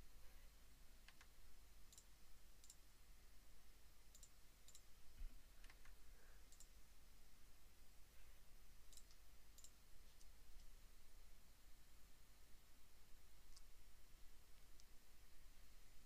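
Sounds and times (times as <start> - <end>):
faint low hum: 0.0 - 16.0
computer mouse clicks: 1.0 - 1.3, 1.9 - 2.8, 4.1 - 4.9, 5.6 - 6.8, 8.9 - 10.7, 13.5 - 13.7, 14.6 - 15.0.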